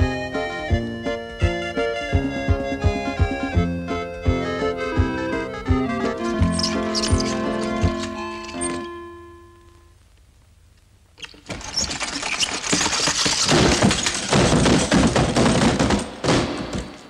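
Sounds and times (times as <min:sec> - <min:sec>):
wheeled cart rattling down stairs: 0:06.2 - 0:08.9, 0:11.4 - 0:17.0.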